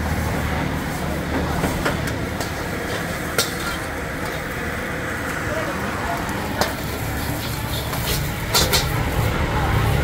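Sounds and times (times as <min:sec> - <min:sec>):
gas burner roaring: 0:00.0 - 0:10.0
metal ladle clanking on wok: 0:06.6 - 0:09.0.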